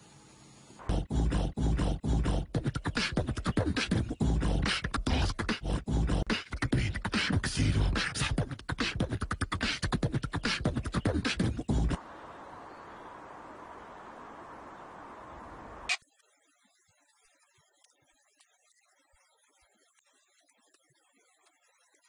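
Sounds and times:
person beatboxing: 0.8s - 12.0s.

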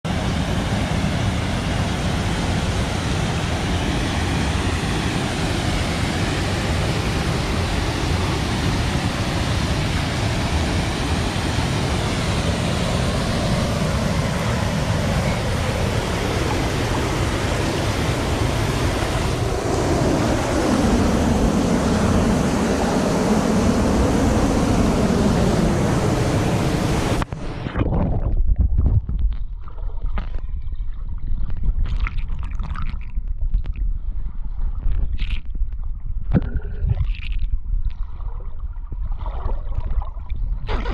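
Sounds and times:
muffled underwater gurgling: 39.5s - 40.9s.

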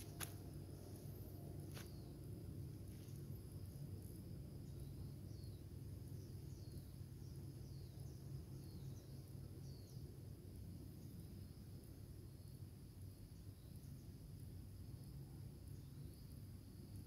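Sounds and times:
low steady rumble: 0.0s - 17.0s
small bird chirping: 4.6s - 10.2s.

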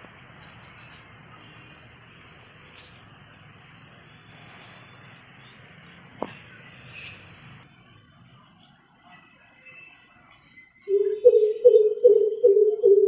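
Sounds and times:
city noise: 0.0s - 13.0s
high-pitched chirping trill: 6.5s - 13.0s.

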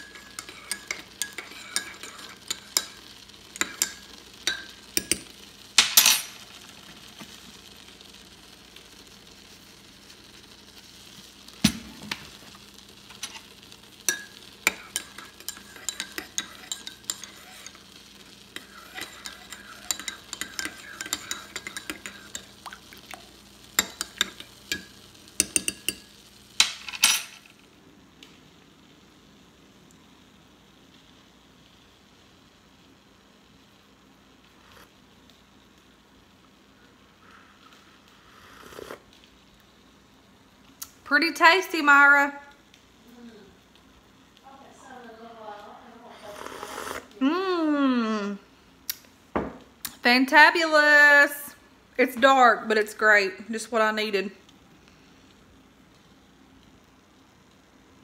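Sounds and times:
metal spoon clinking in mug: 3.6s - 6.4s, 14.1s - 17.4s, 18.6s - 22.5s, 23.8s - 27.4s.

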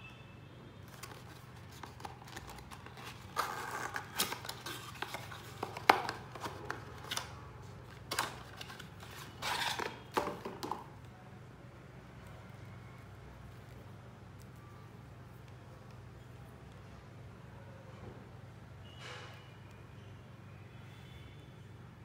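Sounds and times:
cardboard carton rustling: 0.9s - 10.7s.

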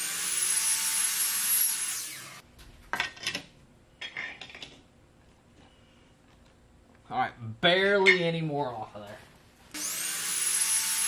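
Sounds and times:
power tool motor whine: 0.0s - 2.4s, 9.7s - 11.0s.

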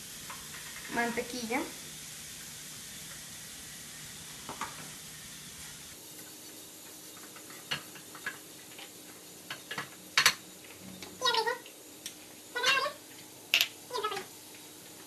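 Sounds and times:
butter sizzling in a frying pan: 0.0s - 10.6s.

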